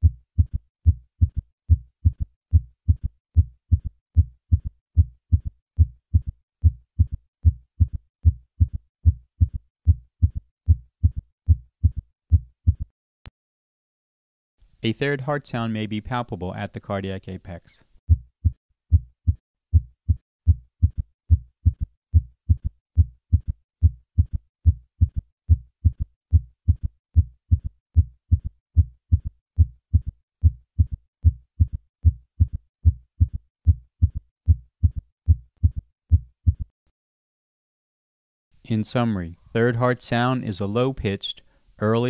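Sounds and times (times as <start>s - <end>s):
heartbeat through stethoscope: 0.0s - 12.9s, 18.1s - 36.7s.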